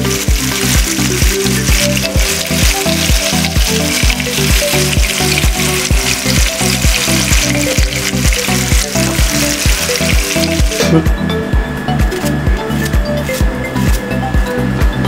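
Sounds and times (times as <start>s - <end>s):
chicken sizzling in oil: 0.0s - 11.0s
background music with a beat: 0.0s - 15.0s.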